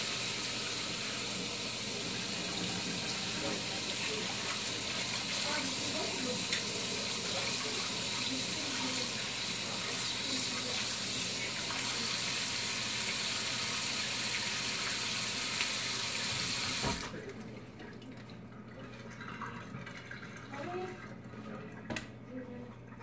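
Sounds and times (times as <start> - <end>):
tap running into sink: 15.5 - 17.1, 21.9 - 22.2.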